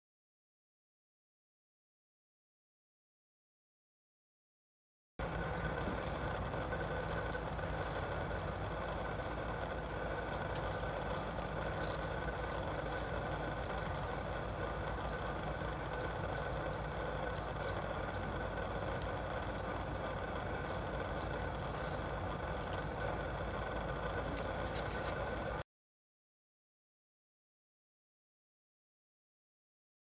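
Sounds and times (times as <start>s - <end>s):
steady low hum: 5.2s - 25.6s.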